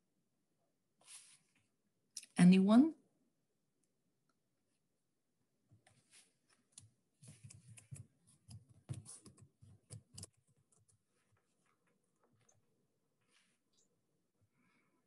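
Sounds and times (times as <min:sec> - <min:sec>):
faint clicking and tapping: 0:05.7 - 0:13.0.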